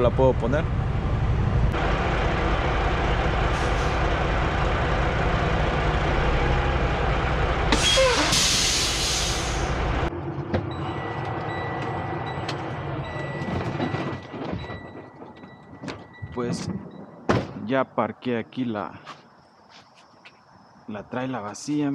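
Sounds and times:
diesel truck engine running: 0.0 - 17.0
air brake hiss: 7.7 - 9.8.

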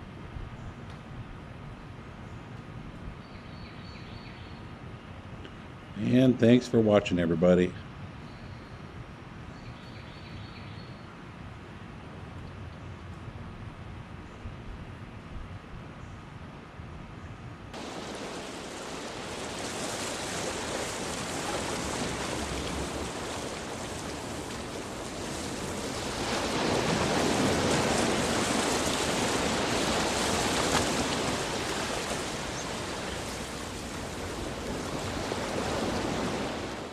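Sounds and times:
ocean waves breaking: 17.8 - 36.9.

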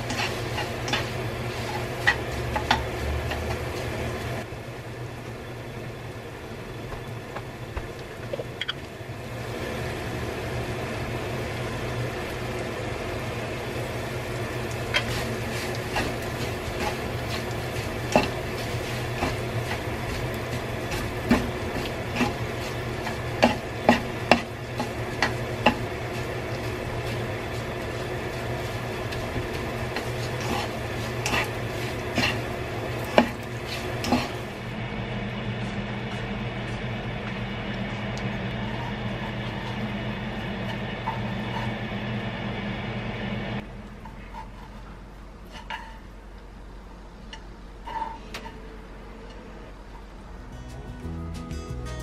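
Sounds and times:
utensil scraping and knocking pan: 0.0 - 3.6, 15.0 - 34.5
food sizzling in a pan: 0.0 - 4.4, 9.1 - 34.7
steady low hum: 0.0 - 52.0.

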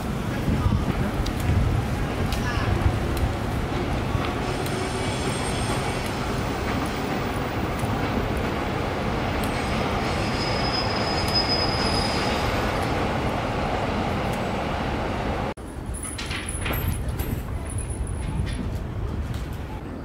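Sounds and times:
train rumbling on viaduct: 0.0 - 20.0
high wheel squeal: 4.4 - 6.2, 9.5 - 12.8.

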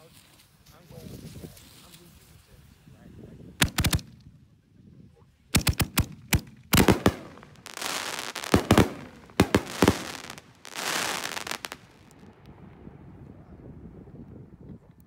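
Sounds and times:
firework shells booming: 3.6 - 4.1, 5.6 - 12.2
firework crackle: 5.6 - 12.4.

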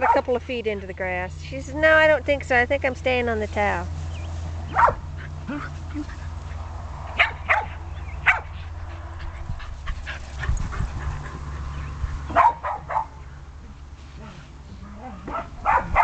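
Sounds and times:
dog barking: 4.7 - 5.0, 7.1 - 8.6, 12.3 - 13.2, 15.2 - 16.0.

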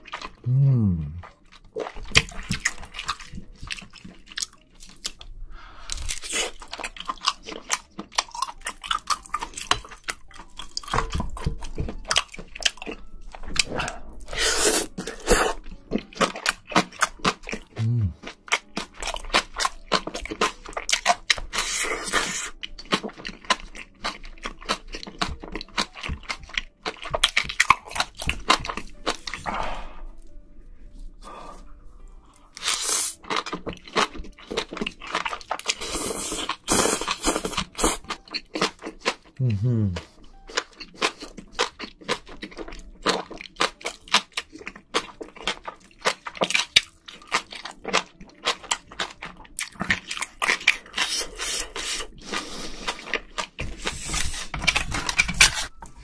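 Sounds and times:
crunchy chewing: 1.2 - 30.0, 32.3 - 56.0
slurping: 13.6 - 15.6, 21.5 - 22.6, 32.6 - 33.2, 35.6 - 38.1, 50.8 - 55.7.

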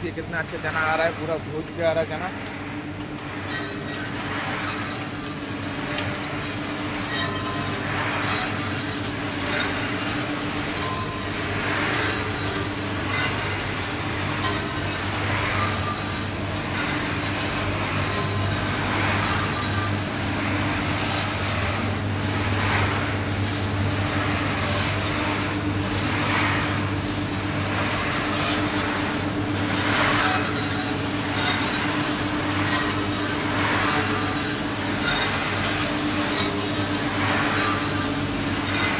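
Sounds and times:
motor hum: 1.1 - 38.9
chickpeas rattling in drum: 3.8 - 38.9.

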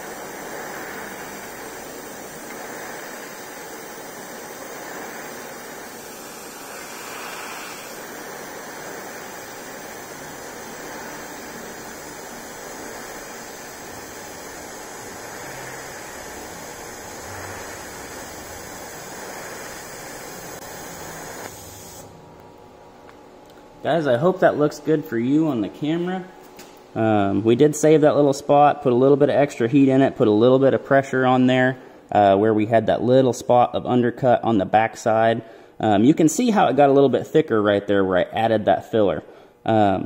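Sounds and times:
welding arc hissing: 0.0 - 22.4.

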